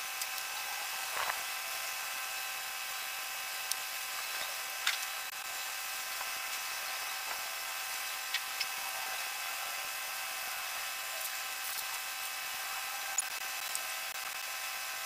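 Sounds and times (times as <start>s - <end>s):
steady buzzing hum: 0.0s - 15.0s.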